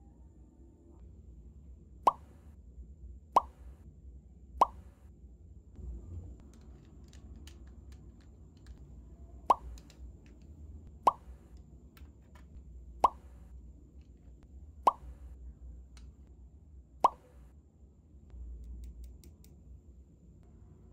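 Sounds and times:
water-drop-like bloops: 2.1 - 2.4, 3.4 - 3.8, 4.6 - 5.0, 9.5 - 9.8, 11.1 - 11.5, 13.0 - 13.5, 14.9 - 15.3, 17.0 - 17.5
plastic discs clicking: 6.4 - 8.8, 9.5 - 10.5.

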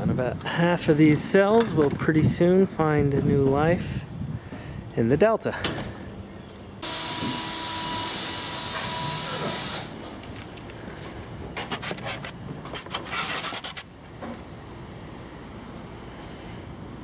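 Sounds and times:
wood and foam packing scraping: 11.6 - 13.9.

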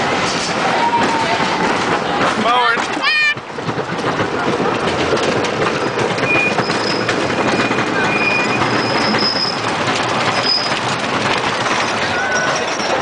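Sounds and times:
wheels rattling on wooden track: 0.0 - 13.0
high wheel squeals: 5.8 - 11.0, 11.6 - 13.0.

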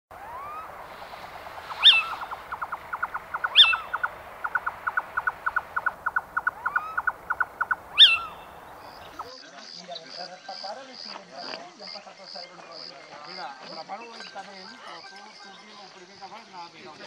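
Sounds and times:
faint rising whistles: 0.1 - 9.3
loud high falling bird call: 0.1 - 9.3.

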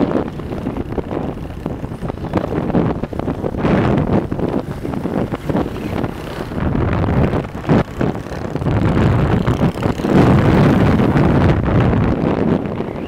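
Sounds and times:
road and vehicle noise: 0.0 - 13.0
wind buffeting microphone: 0.0 - 13.0.

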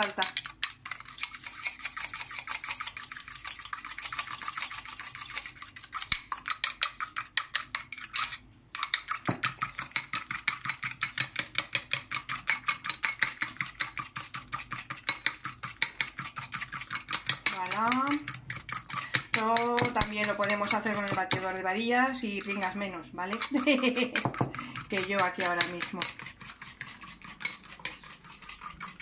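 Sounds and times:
spoon beating in ceramic bowl: 17.1 - 21.5, 23.3 - 26.2.

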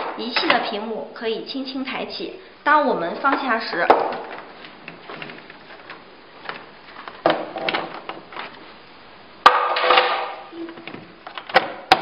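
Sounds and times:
plastic panel knocks and clicks: 10.8 - 12.0.

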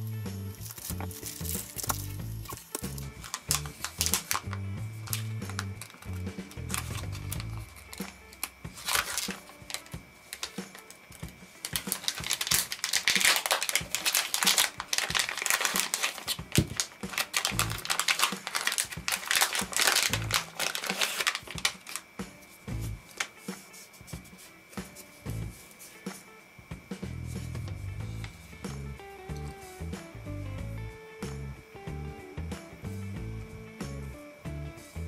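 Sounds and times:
background music with low beat: 0.0 - 12.8, 16.4 - 20.6, 21.6 - 35.0
plastic pouch crinkling: 0.6 - 22.1.

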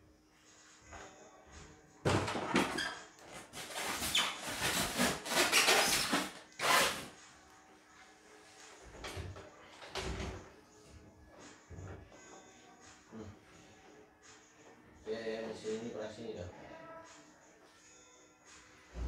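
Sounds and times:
cardboard and packing scraping: 3.4 - 7.1.

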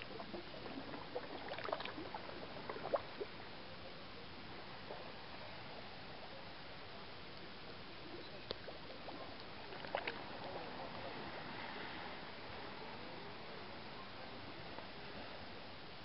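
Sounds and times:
underwater water noise: 0.0 - 16.0.

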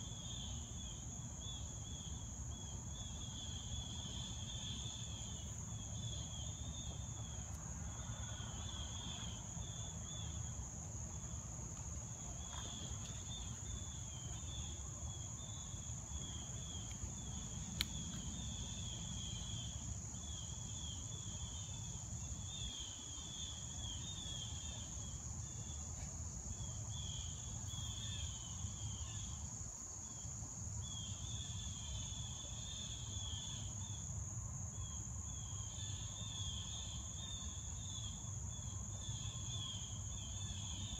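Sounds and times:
chirring insect trill: 12.4 - 40.9.

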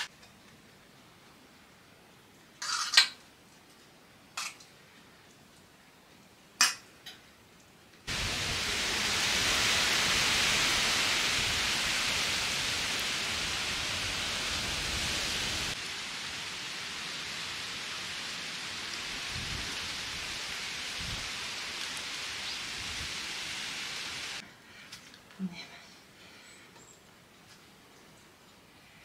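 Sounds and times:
steady outdoor rushing noise: 8.1 - 24.4.

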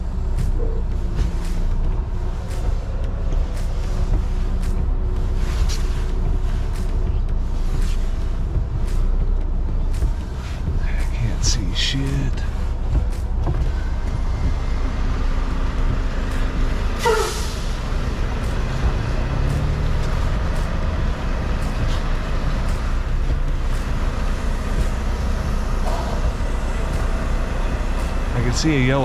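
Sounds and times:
truck diesel engine running: 0.0 - 29.0.

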